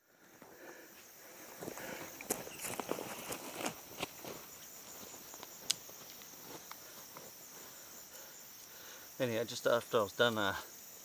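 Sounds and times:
insects trilling: 0.0 - 11.0
footsteps crunching on dry leaves: 1.6 - 7.4.

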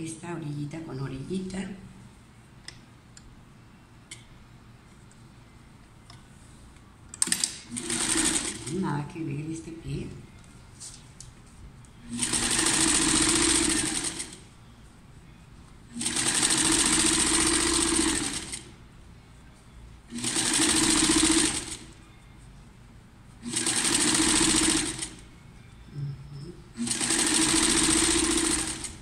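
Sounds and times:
sewing machine stitching: 7.2 - 8.8, 12.1 - 14.4, 16.0 - 18.7, 20.1 - 21.9, 23.4 - 25.2, 26.8 - 29.0.

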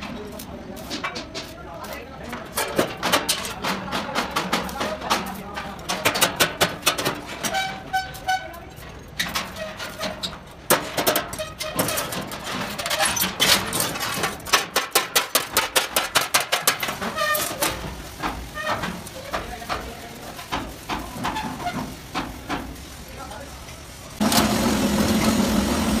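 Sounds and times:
metal strikes on steel frame: 2.4 - 8.0, 9.2 - 19.9.

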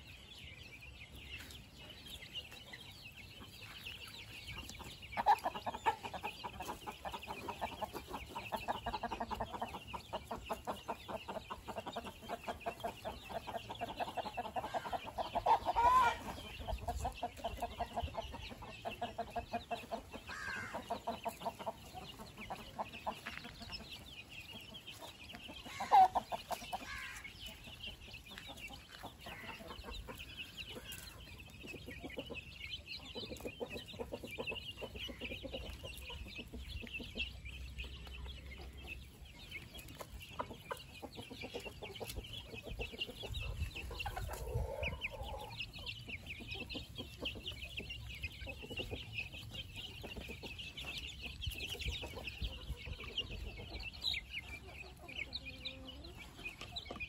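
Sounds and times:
chicken clucking: 0.0 - 57.0
chicks peeping: 0.0 - 57.0
loud chicken call: 15.5 - 16.3.

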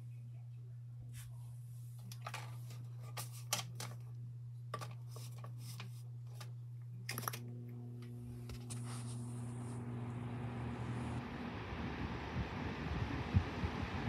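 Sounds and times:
fan motor humming: 0.0 - 14.0
clicks and knocks handling fan: 4.7 - 6.5
low hum: 6.2 - 14.0
rush of air: 10.6 - 14.0.

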